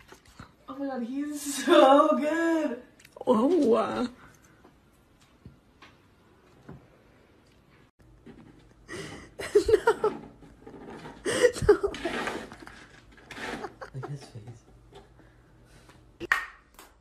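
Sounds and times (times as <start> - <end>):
person laughing: 8.9 - 10.2, 11.2 - 12.8, 13.4 - 14.5.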